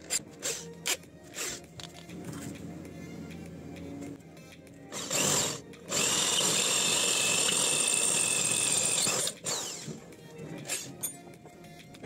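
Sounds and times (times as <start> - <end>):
electric drill boring metal: 4.9 - 10.0.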